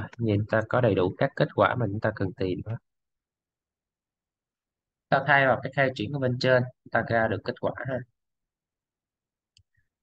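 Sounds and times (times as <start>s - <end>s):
computer mouse click: 9.5s - 9.9s.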